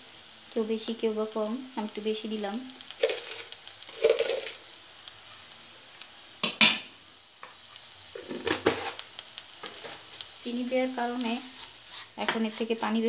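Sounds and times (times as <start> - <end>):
light sizzling: 0.0 - 13.0
spatula scraping frying pan: 2.8 - 4.6, 9.6 - 10.2, 11.2 - 13.0.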